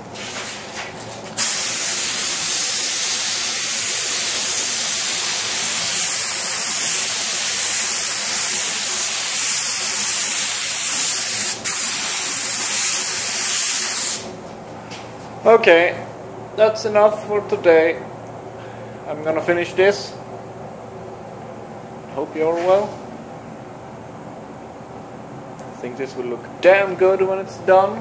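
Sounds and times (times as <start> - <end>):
spray gun hissing: 1.4 - 14.3.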